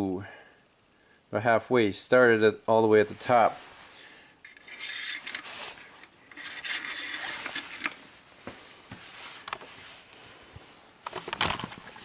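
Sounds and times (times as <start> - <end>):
metal dipstick scraping in tube: 4.4 - 8.0.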